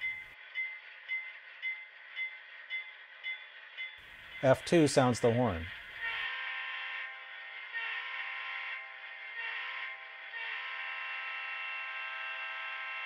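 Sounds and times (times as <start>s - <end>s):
locomotive horn through small speaker: 6.0s - 7.1s, 7.7s - 13.0s.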